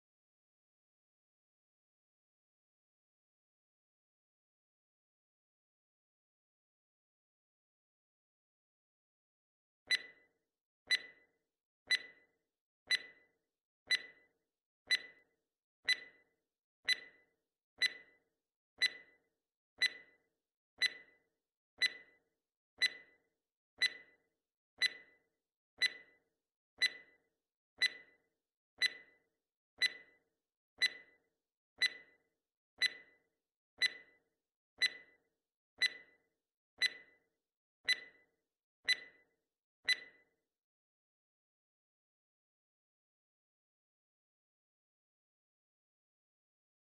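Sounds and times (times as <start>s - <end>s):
ringing timer ticks: 9.9s - 10.2s, 10.9s - 11.3s, 11.9s - 12.3s, 12.9s - 13.2s, 13.9s - 14.3s, 14.9s - 15.3s, 15.9s - 16.3s, 16.9s - 18.2s, 18.8s - 19.2s, 19.8s - 20.2s, 20.8s - 21.2s, 21.8s - 22.2s, 22.8s - 23.2s, 23.8s - 24.2s, 24.8s - 25.2s, 25.8s - 26.2s, 26.8s - 27.2s, 27.8s - 28.2s, 28.8s - 29.2s, 29.8s - 30.2s, 30.8s - 31.2s, 31.8s - 32.2s, 32.8s - 33.2s, 33.8s - 34.2s, 34.8s - 35.2s, 35.8s - 36.2s, 36.8s - 37.2s, 37.8s - 38.3s, 38.9s - 39.2s, 39.9s - 40.2s.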